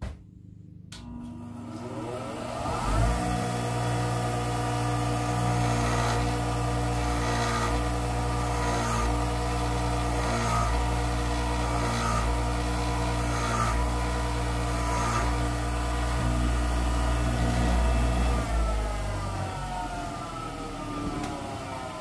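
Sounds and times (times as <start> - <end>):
bench grinder motor humming: 1.0 - 22.0
metal grinding against wheel: 5.3 - 18.6.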